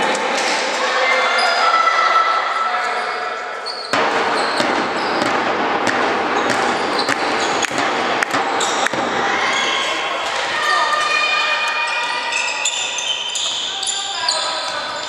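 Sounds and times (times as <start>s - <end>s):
echoing hall noise: 0.0s - 15.0s
shoe squeaks on floor: 2.9s - 5.3s, 11.8s - 15.0s
ball bouncing and thudding: 3.9s - 9.2s.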